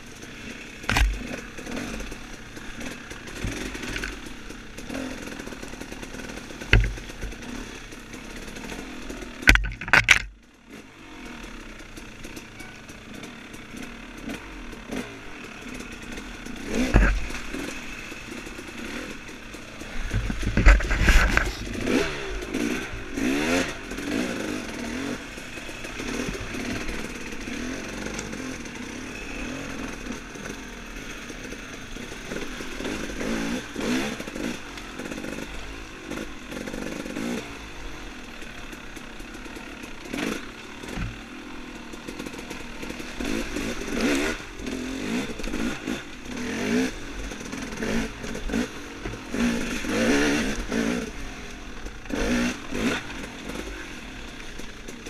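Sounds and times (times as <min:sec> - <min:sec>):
dirt bike engine revving: 0:00.0 - 0:55.0
clattering and heavy thumps: 0:06.7 - 0:07.4, 0:09.4 - 0:10.3, 0:16.9 - 0:17.5, 0:20.0 - 0:21.8.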